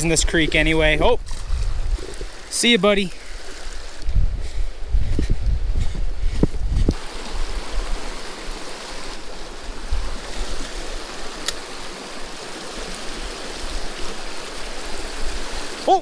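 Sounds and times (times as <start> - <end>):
wind rumble on microphone: 0.0 - 2.4, 3.3 - 11.0
creek water rushing: 0.0 - 4.2, 6.9 - 16.0.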